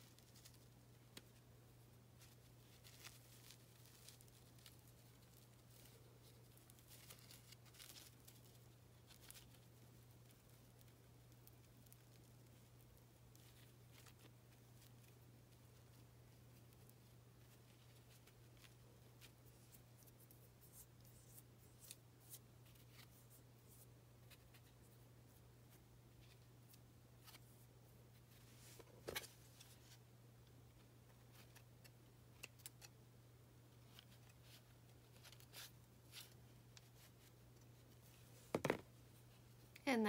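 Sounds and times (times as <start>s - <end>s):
hands handling feathers: 2.2s - 9.6s.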